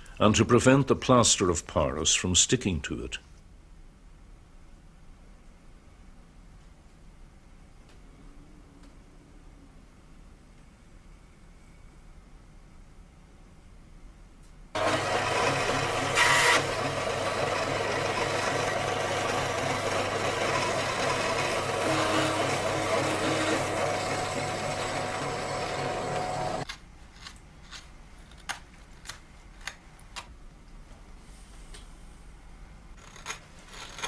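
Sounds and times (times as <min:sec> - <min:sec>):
electric scroll saw cutting: 0:14.8 - 0:26.6.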